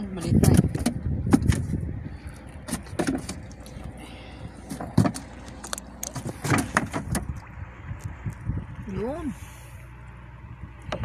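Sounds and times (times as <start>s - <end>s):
fishing tackle clicks and knocks: 4.7s - 8.4s.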